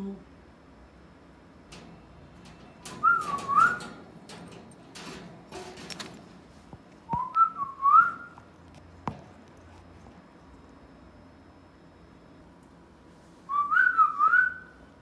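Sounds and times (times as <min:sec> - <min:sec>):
clicks: 0:01.7 - 0:09.6.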